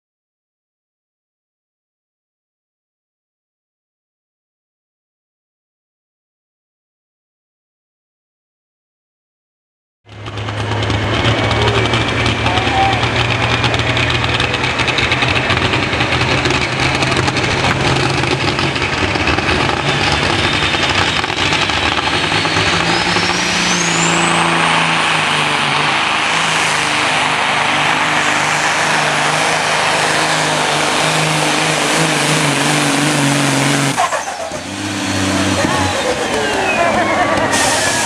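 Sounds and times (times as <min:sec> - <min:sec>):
diesel engine at high revs: 0:10.1 - 0:38.0
high whistle: 0:22.4 - 0:24.8, 0:35.9 - 0:38.0.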